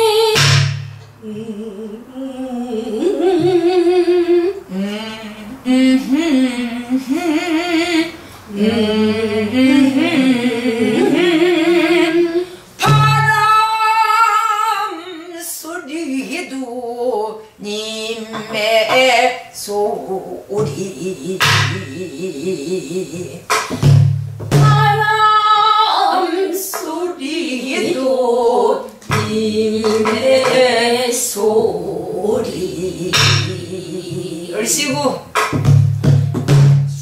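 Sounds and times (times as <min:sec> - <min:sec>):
woman singing folk song: 0:01.2 - 0:23.8, 0:24.6 - 0:35.2
dull barrel drum strokes: 0:29.1 - 0:30.8, 0:31.6 - 0:37.0.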